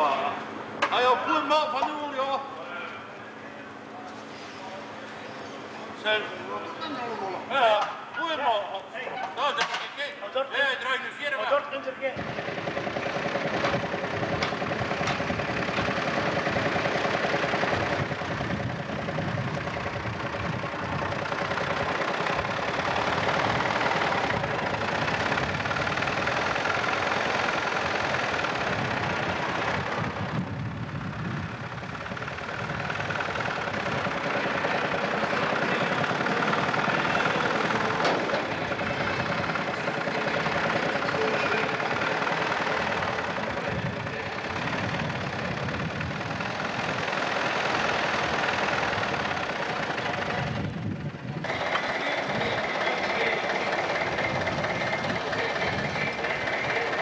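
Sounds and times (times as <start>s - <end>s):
tractor engine running: 12.2s - 57.0s.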